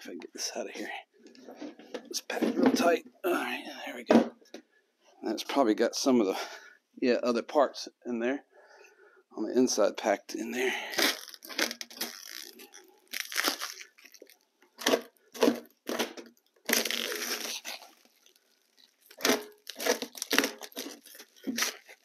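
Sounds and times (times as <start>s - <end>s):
plastic wrap crinkling and tearing: 10.7s - 22.0s.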